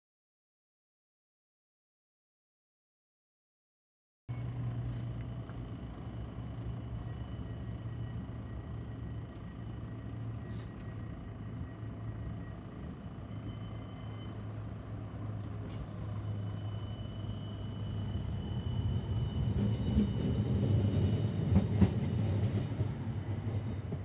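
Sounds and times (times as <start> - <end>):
tram equipment humming: 4.3 - 24.0
brief high tone: 13.3 - 14.5.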